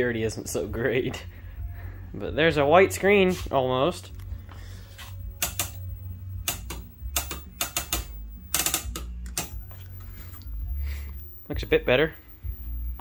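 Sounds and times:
steady low hum: 0.0s - 13.0s
sharp mechanical clicks: 6.4s - 9.6s.

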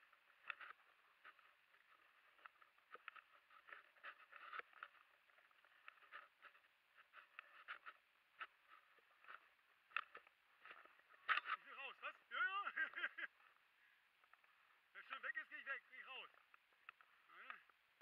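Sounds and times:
faint crackling and ticking: 0.0s - 18.0s.

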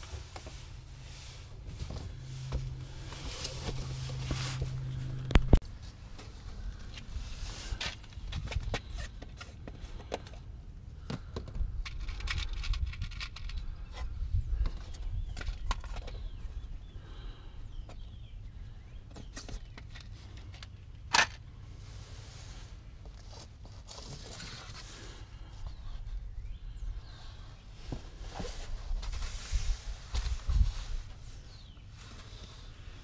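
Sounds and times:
low rumble: 0.0s - 5.6s
hands handling fasteners: 7.7s - 14.0s.

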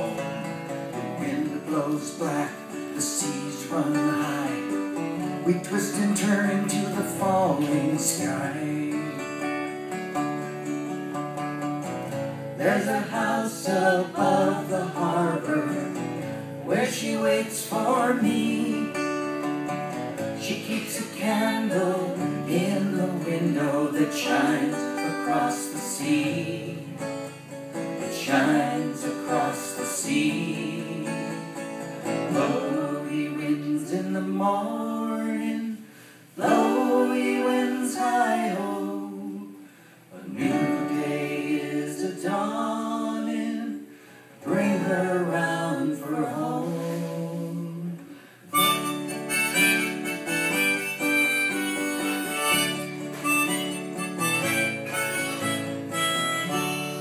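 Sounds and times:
acoustic guitar strumming: 0.0s - 42.6s, 46.2s - 57.0s
person singing: 1.2s - 9.5s, 12.6s - 19.1s, 20.4s - 27.1s, 28.1s - 31.6s, 32.3s - 35.8s, 36.4s - 57.0s
harmonica: 48.5s - 57.0s.

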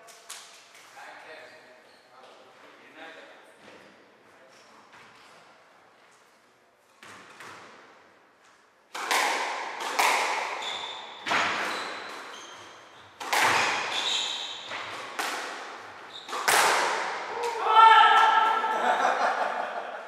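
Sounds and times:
squash ball hits echoing: 8.9s - 12.3s, 13.2s - 18.7s
shoes squeaking on wooden floor: 10.5s - 15.1s, 15.9s - 16.5s.

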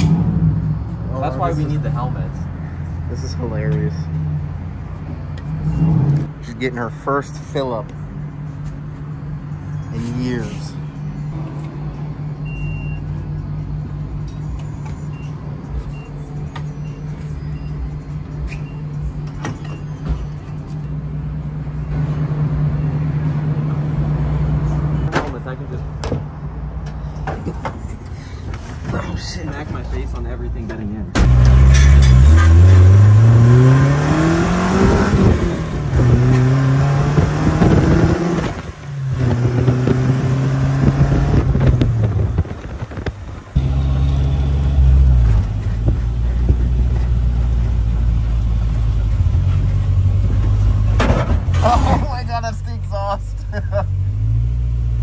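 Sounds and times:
car engine accelerating: 0.0s - 3.3s, 31.2s - 52.0s
gear change: 31.2s - 50.7s.

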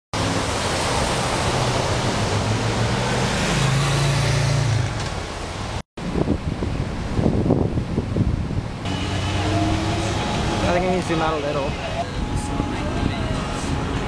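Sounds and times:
steady rush of cars: 0.1s - 14.0s
vehicle engine hum: 8.7s - 14.0s.

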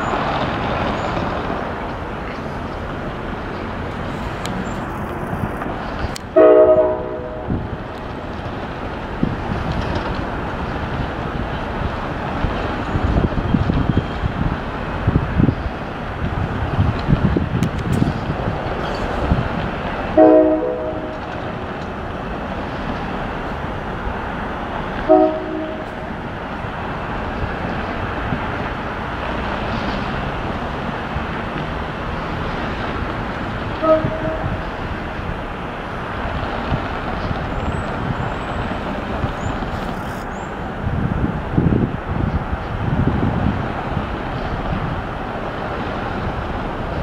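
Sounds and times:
diesel locomotive engine rumbling: 0.0s - 47.0s
locomotive horn blasts: 6.3s - 7.6s, 20.2s - 21.3s, 25.0s - 26.1s, 33.8s - 34.6s.

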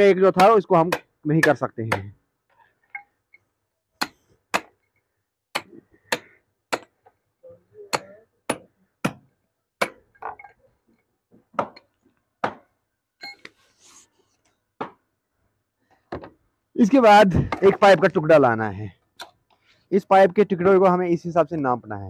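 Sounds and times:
hammer striking chisel: 0.4s - 2.2s, 4.0s - 4.8s, 5.5s - 7.0s, 7.9s - 10.5s, 11.6s - 12.7s.

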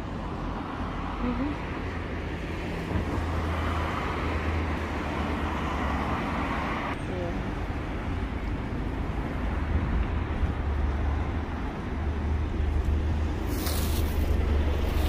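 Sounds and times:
road traffic noise: 0.0s - 15.0s
short hiss: 13.5s - 14.3s.

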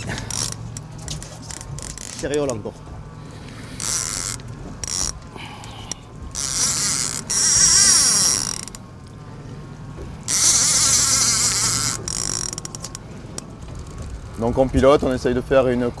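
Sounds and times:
fishing reel drag whining: 0.0s - 2.4s, 3.2s - 8.9s, 10.2s - 13.1s.

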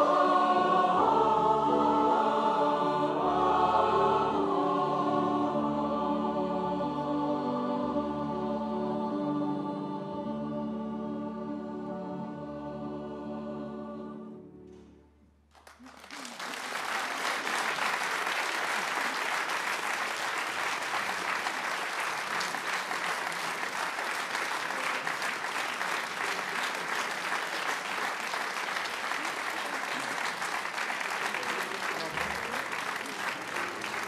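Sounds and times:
choir and instruments chord: 0.0s - 15.2s
audience applause: 15.5s - 34.0s.

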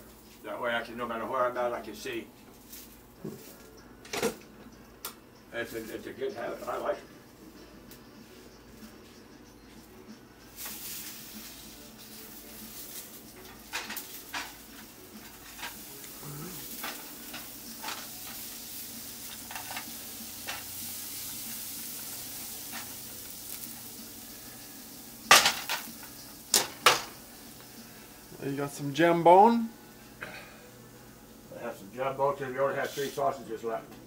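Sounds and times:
food sizzling in a frying pan: 10.5s - 33.6s.

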